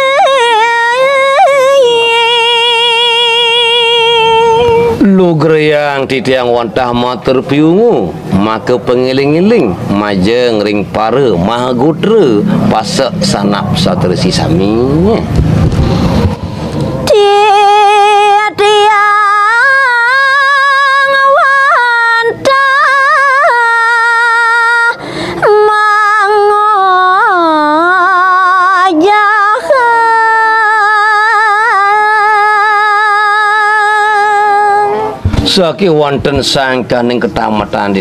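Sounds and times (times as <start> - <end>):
woman singing unaccompanied: 0.0 - 5.0, 17.1 - 35.2.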